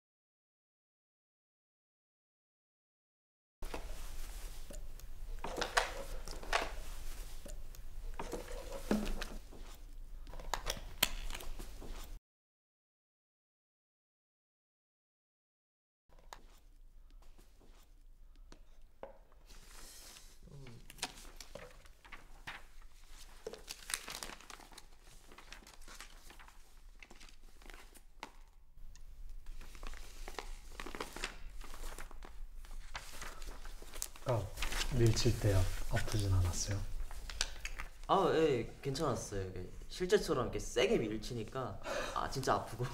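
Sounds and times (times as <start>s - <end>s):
plastic bottle crinkling: 3.6s - 11.9s, 20.5s - 28.6s, 29.4s - 38.1s
paper pages rustling: 3.6s - 12.2s, 19.5s - 38.2s.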